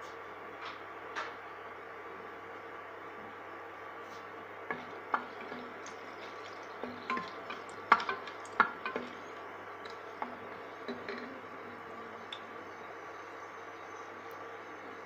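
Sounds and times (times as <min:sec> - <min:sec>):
spatula scraping metal pot: 0:04.7 - 0:09.4.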